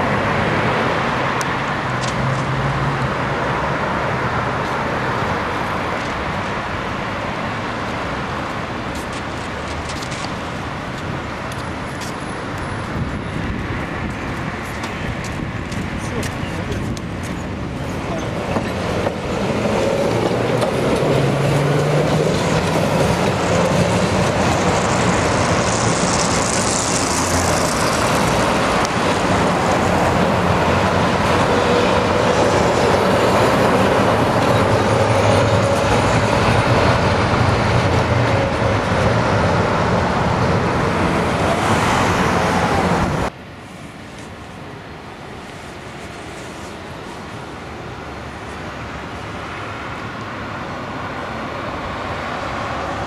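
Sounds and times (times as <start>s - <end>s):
tram wheels rumbling on rails: 0.0s - 43.3s
road traffic: 0.0s - 53.0s.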